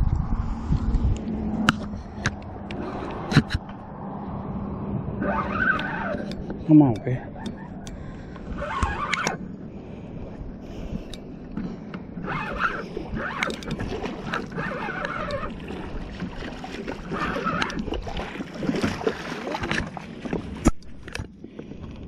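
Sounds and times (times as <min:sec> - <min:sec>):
water washing against rocks: 0:13.2 - 0:20.8.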